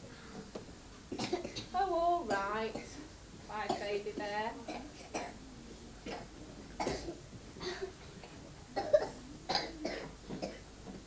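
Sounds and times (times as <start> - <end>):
people coughing: 1.1 - 1.7, 4.7 - 5.4, 6.0 - 8.0, 8.8 - 10.7.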